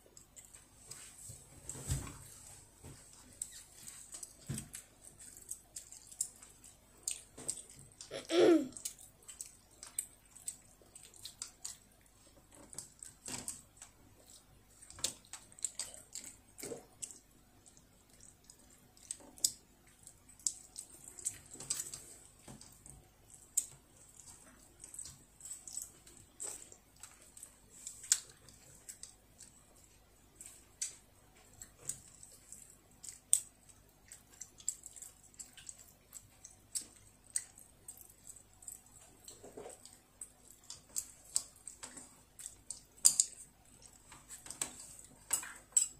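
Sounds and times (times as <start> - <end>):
wet chewing: 3.0 - 45.9
child vocal sound: 8.1 - 8.8.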